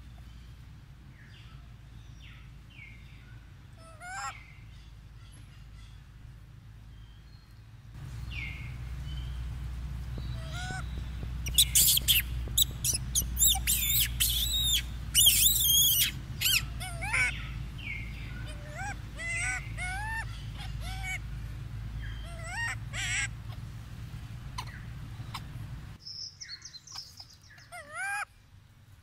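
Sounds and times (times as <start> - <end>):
low rumble: 0.0 - 26.0
baby monkey whimpering: 3.8 - 4.3, 10.4 - 10.8, 11.5 - 17.5, 18.4 - 21.2, 22.2 - 23.6, 24.6 - 25.5
baby monkey screaming: 3.8 - 4.4, 10.4 - 10.8, 11.4 - 21.2, 22.0 - 23.6, 24.5 - 25.5, 26.9 - 28.3.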